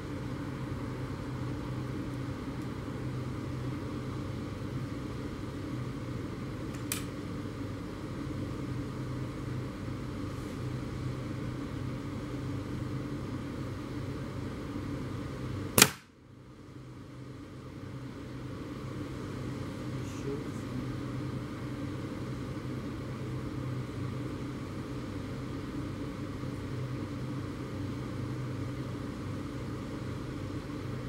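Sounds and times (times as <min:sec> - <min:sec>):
steady low hum: 0:00.0 - 0:31.0
air rifle shot: 0:15.8 - 0:16.1.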